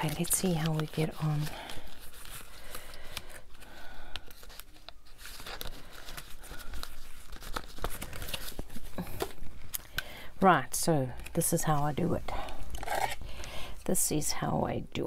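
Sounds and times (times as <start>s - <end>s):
paper rustling and crinkling: 0.0s - 9.7s.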